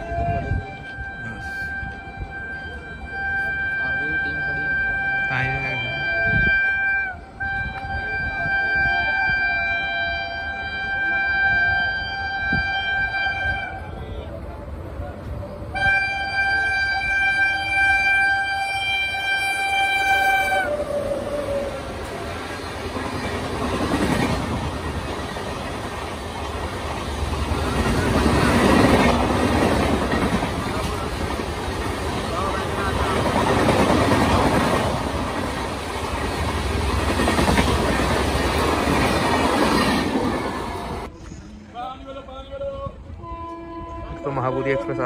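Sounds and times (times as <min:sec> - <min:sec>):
train horn blast: 0:00.0 - 0:14.1, 0:15.7 - 0:21.8, 0:43.1 - 0:45.0
train wheels roaring on rail: 0:00.0 - 0:45.0.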